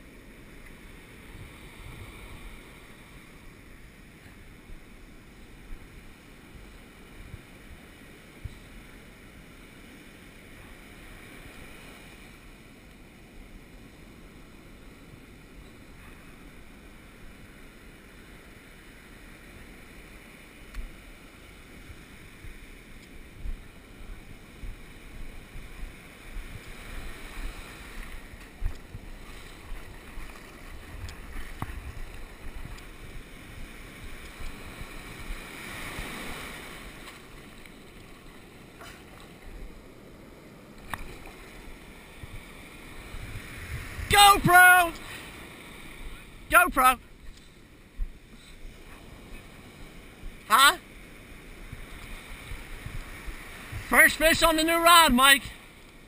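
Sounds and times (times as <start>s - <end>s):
small surf breaking: 0.0s - 56.0s
wind buffeting microphone: 23.2s - 37.0s, 42.1s - 44.4s, 51.6s - 53.9s.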